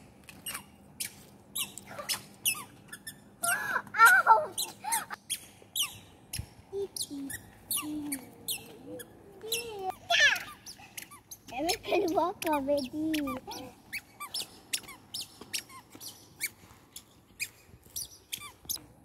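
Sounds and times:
squeaky sandals squeaking: 0.3s - 3.3s, 4.6s - 18.8s
child's voice: 3.5s - 4.7s, 6.7s - 10.6s, 11.5s - 13.8s.

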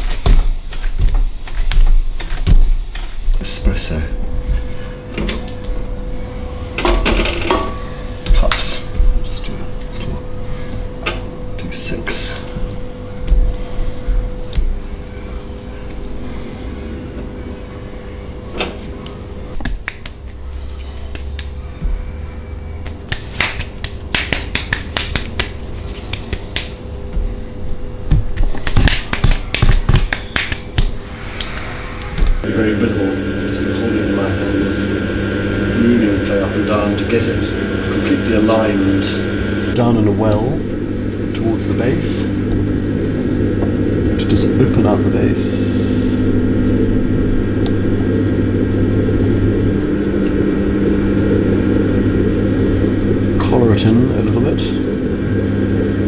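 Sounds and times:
potter's wheel motor hum: 0.0s - 56.0s
wet clay slapped between palms: 19.6s - 20.3s, 22.8s - 26.8s, 28.2s - 31.6s.

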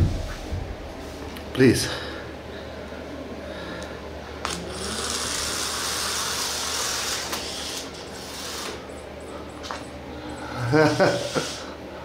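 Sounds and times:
toy motor whirring: 4.4s - 9.0s, 11.0s - 11.7s.

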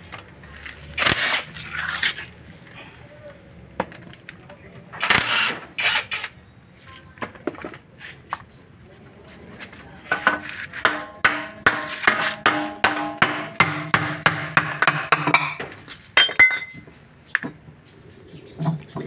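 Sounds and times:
hammer striking metal case: 10.2s - 15.6s.

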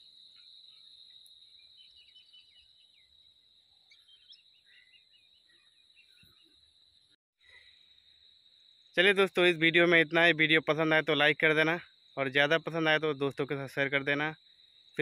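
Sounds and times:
high-pitched insect trill: 0.0s - 15.0s
short bird chirps: 0.4s - 3.2s, 3.8s - 6.7s.

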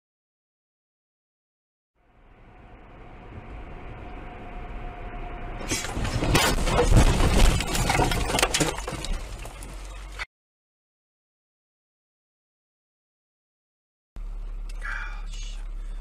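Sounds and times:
road and engine noise in car: 2.0s - 6.8s, 14.2s - 16.0s
car crash: 2.1s - 10.3s
bangs thumps and rattles: 5.7s - 10.2s.

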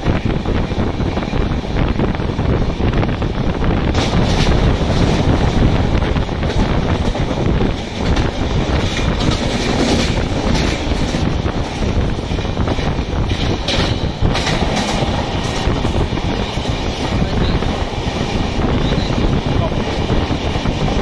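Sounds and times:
freight train passing: 0.0s - 21.0s
train wheels rumbling on rails: 0.0s - 21.0s
wind: 0.0s - 21.0s
sharp wheel clacks: 6.4s - 17.3s.

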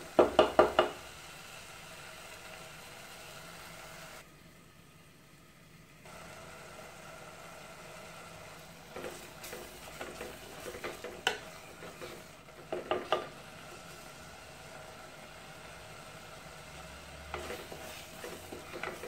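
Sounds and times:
gravy sizzling faintly: 0.0s - 19.0s
wooden spoon scraping clay pot: 8.9s - 13.3s, 17.3s - 19.0s.

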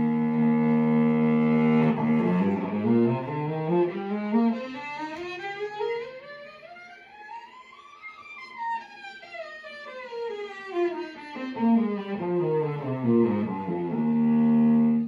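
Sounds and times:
bowed cello: 0.0s - 6.2s, 10.1s - 15.0s.

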